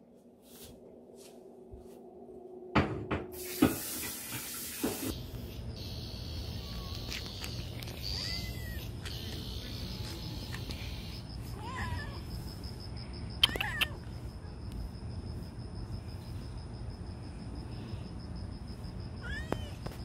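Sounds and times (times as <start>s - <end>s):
rushing hiss: 3.4s - 5.2s.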